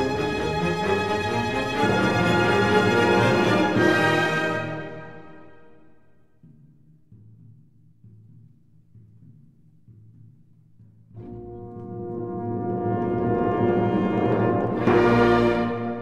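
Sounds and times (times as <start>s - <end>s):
low drum roll: 11.0s - 16.0s.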